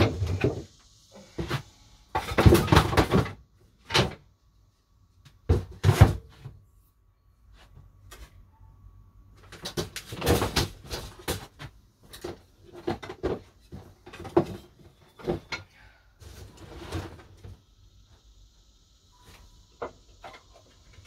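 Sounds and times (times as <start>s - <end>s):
household items knocking and clattering: 1.4s - 4.2s, 9.5s - 15.6s.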